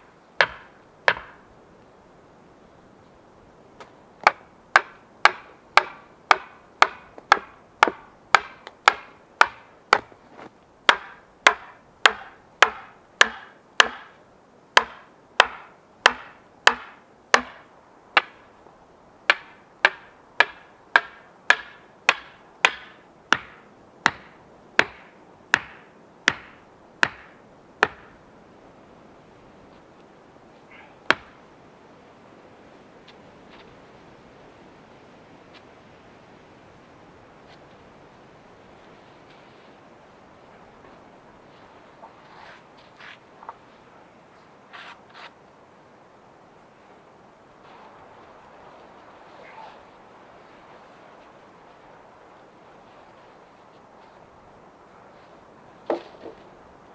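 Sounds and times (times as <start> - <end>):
axe knocking wooden stakes: 0.4 - 1.4, 4.2 - 10.2, 10.9 - 14.2, 14.8 - 18.4, 19.3 - 28.1, 31.1 - 31.3, 55.9 - 56.4.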